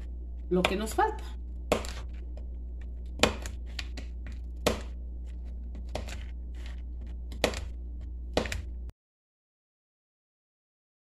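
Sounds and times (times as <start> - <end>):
low hum: 0.0 - 8.9
knife chopping on cutting board: 0.6 - 1.0, 1.6 - 2.4, 3.2 - 5.0, 5.7 - 8.8.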